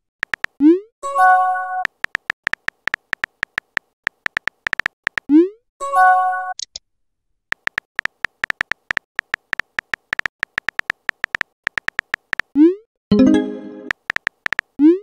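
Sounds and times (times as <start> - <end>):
synthetic keyboard typing clicks: 0.2 - 0.8, 1.8 - 5.4, 7.5 - 15.0.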